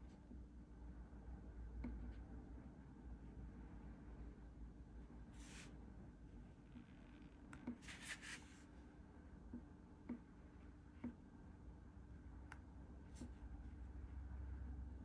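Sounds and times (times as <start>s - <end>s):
low room hum: 0.0s - 15.0s
marker scratching on paper: 7.6s - 8.6s.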